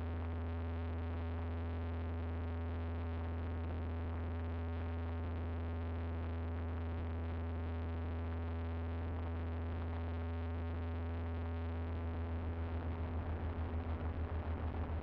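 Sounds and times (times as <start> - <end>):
light aircraft engine droning: 12.2 - 15.0.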